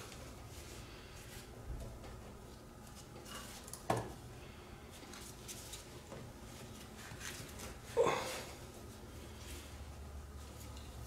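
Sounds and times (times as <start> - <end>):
soft scrapes and rustles: 4.9 - 8.0.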